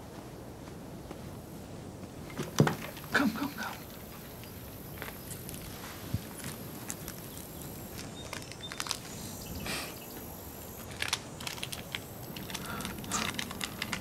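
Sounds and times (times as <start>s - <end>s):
foil wrapper crinkling: 5.0s - 9.6s, 10.7s - 14.0s.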